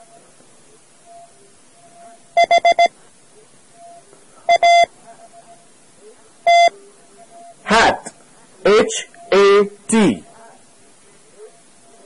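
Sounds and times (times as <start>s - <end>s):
faint tape hiss: 0.0s - 12.0s
morse code beeps: 1.1s - 3.0s, 3.8s - 5.6s, 6.4s - 7.6s.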